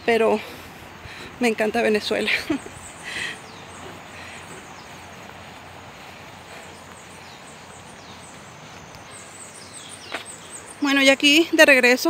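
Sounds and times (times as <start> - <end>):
outdoor background hiss: 0.0 - 12.0
high bird chirps: 2.1 - 11.5.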